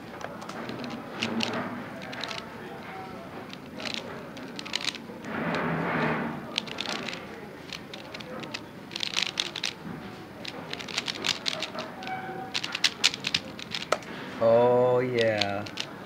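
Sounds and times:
puzzle cube plastic clicks: 0.2 - 2.5, 3.4 - 5.0, 6.4 - 9.8, 10.4 - 14.1, 15.2 - 16.0.

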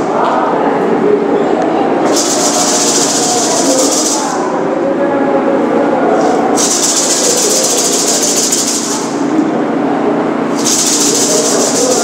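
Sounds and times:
gourd rattle shaking: 2.1 - 4.4, 6.6 - 9.2, 10.6 - 12.0.

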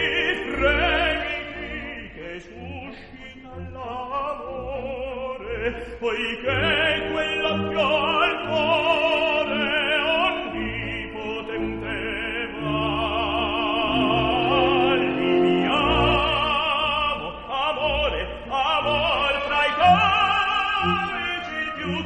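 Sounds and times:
operatic solo voice singing: 0.0 - 22.0
orchestral accompaniment: 0.0 - 22.0.

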